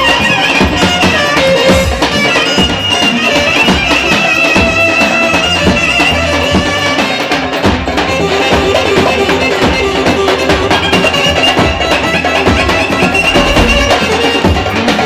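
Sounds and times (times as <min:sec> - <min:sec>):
wind instrument high melody: 0:00.0 - 0:07.4, 0:08.2 - 0:14.9
bass drum beating: 0:13.0 - 0:14.2.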